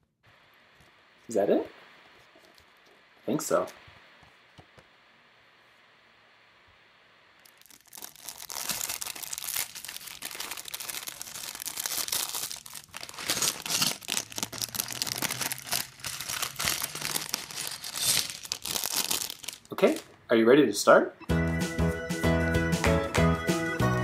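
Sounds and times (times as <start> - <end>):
plastic bags crinkling: 7.4 - 20.1.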